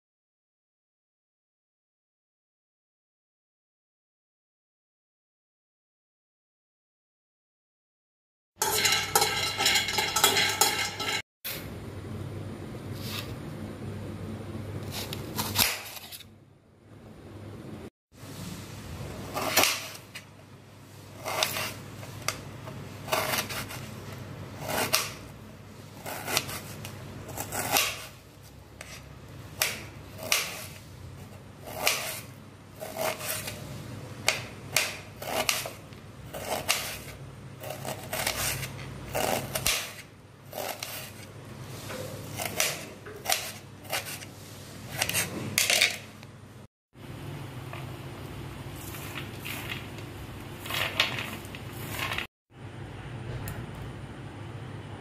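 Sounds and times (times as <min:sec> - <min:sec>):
knife scraping: 0:08.6 - 0:11.6, 0:14.8 - 0:16.3, 0:19.2 - 0:20.3, 0:20.9 - 0:46.2
knife chopping on a plate: 0:28.8 - 0:30.8, 0:31.6 - 0:33.6, 0:42.0 - 0:44.3.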